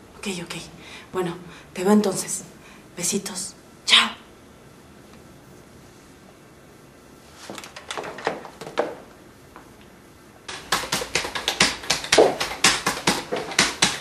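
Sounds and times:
fast typing on keyboard: 10.5s - 14.0s.

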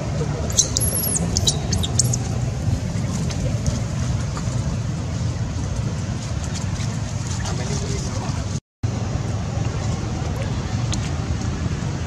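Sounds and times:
steady low rumble: 0.0s - 12.0s
high-pitched chirps: 0.5s - 2.3s.

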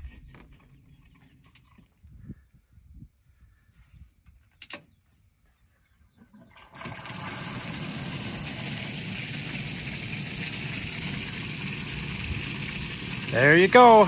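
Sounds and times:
water gushing into trough: 6.4s - 14.0s.

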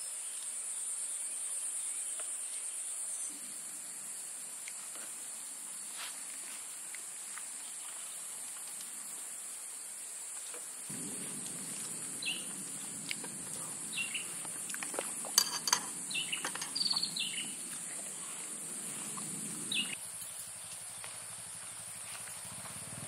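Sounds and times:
birds chirping: 10.9s - 22.0s
plastic bowls and utensils clicking: 15.3s - 16.9s.

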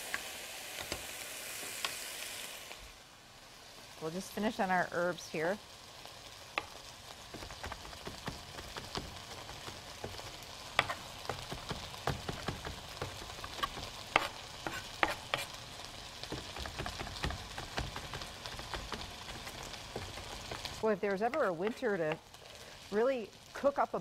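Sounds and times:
potatoes sizzling in oil: 0.0s - 24.0s
knife chopping on cutting board: 10.8s - 15.6s, 16.3s - 20.6s.

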